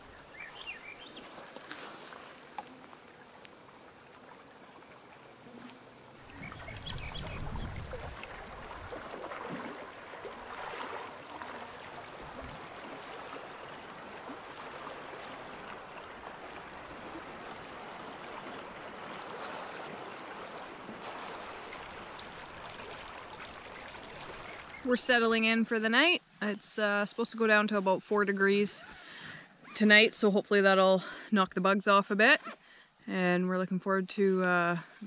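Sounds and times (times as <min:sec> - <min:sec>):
water lapping and splashing: 0:00.0 - 0:25.1.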